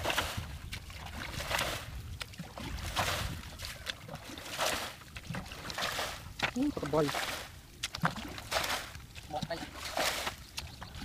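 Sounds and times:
muddy water sloshing and splashing: 0.0 - 11.0.

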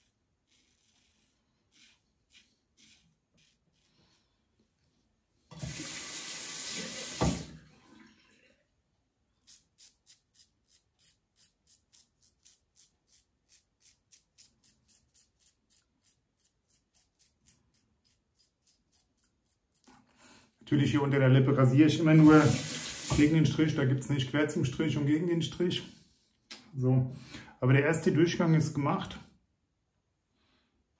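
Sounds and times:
tap water running into basin: 5.5 - 8.4, 22.1 - 23.6
tap knock: 7.2 - 7.4
razor scraping stubble: 9.4 - 19.9.

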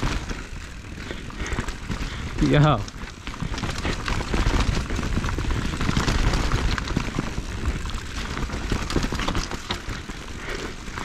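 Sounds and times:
bike rattling: 0.0 - 11.0
bike tyres clattering over dirt: 0.0 - 11.0.

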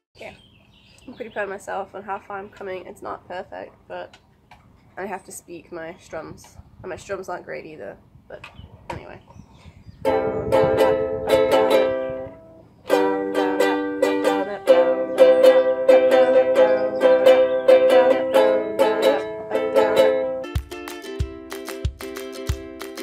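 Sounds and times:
ukulele strummed in chords: 10.0 - 23.0
background music with thumping beat: 20.6 - 23.0.

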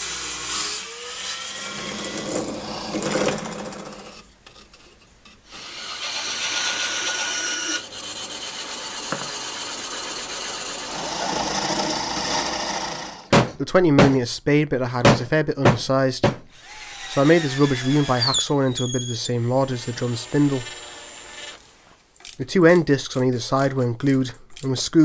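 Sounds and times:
bandsaw cutting plywood: 0.0 - 4.8, 5.4 - 13.4, 16.5 - 21.6
wood rubbing and handled: 8.7 - 12.1.

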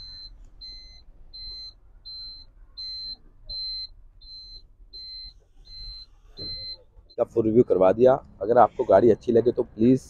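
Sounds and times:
short high electronic beeps: 0.0 - 6.8.

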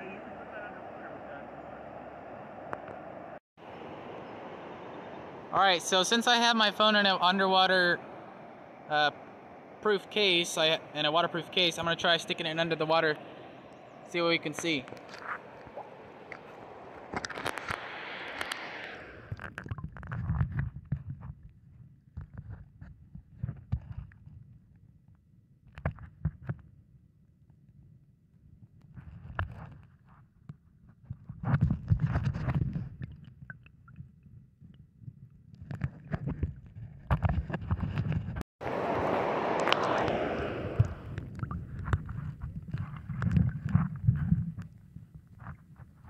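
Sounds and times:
rushing river water: 0.0 - 19.4, 38.6 - 41.6.

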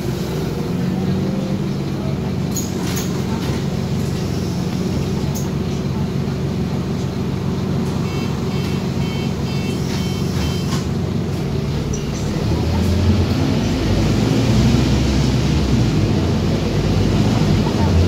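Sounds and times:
bus diesel engine: 0.0 - 18.0
short high beeps: 8.0 - 10.8.

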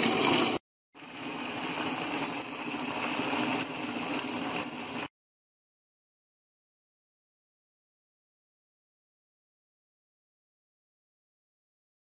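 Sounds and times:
fish sizzling in hot oil: 0.0 - 5.1.

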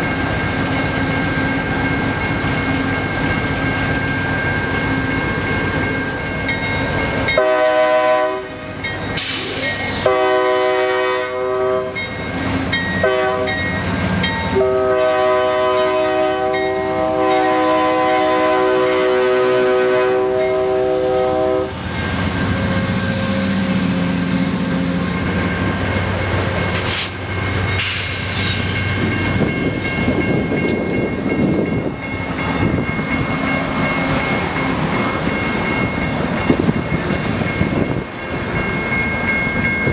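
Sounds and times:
locomotive air horn blasts: 7.4 - 12.0, 12.6 - 13.6, 14.5 - 21.8.

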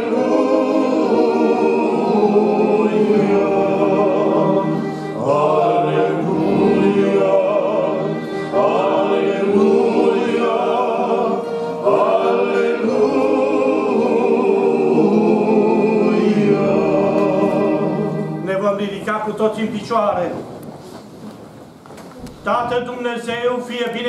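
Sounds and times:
group singing a hymn: 0.0 - 18.7.

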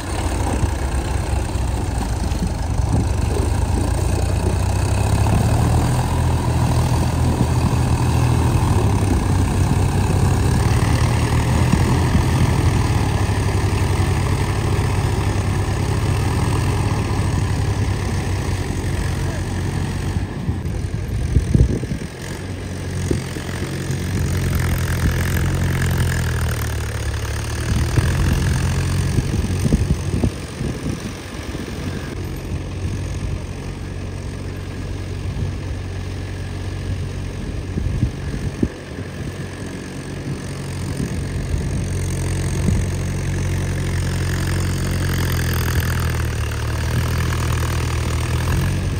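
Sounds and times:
tractor diesel engines running: 0.0 - 48.9.

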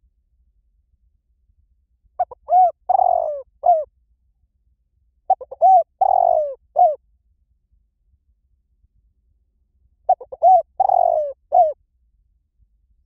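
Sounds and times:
dove cooing: 2.2 - 3.9, 5.3 - 7.0, 10.1 - 11.8.

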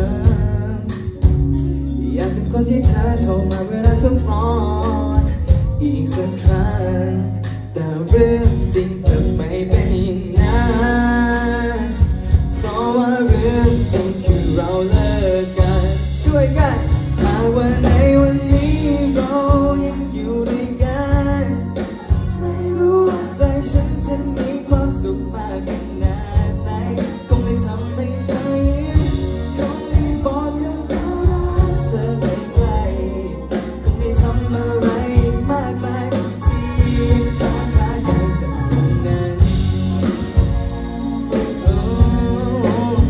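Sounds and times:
man singing into microphone: 0.0 - 40.5, 41.3 - 43.0
drums: 0.0 - 43.0
electric bass guitar: 0.0 - 43.0.

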